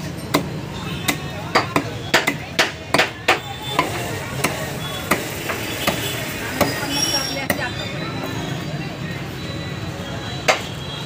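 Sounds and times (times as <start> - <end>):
knife chopping fish on wood: 0.3 - 6.8.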